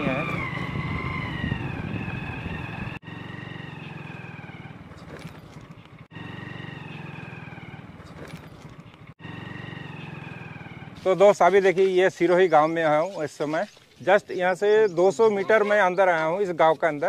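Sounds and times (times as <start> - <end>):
vehicle engine running: 0.0 - 11.9.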